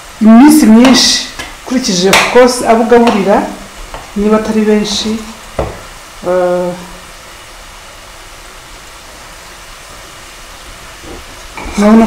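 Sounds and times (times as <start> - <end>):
dough deep-frying in oil: 0.0 - 12.0
single knock: 5.6 - 5.8.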